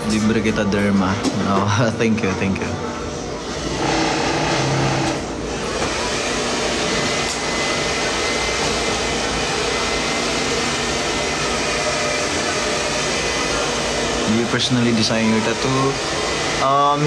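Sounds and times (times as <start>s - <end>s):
air blower rushing: 3.4s - 17.0s.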